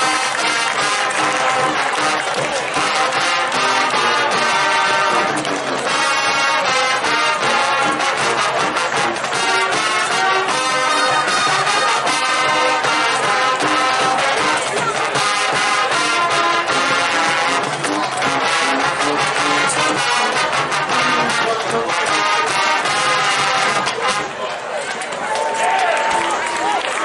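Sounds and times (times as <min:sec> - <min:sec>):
marching band drums: 0:00.0 - 0:24.4
marching band brass: 0:00.0 - 0:27.0.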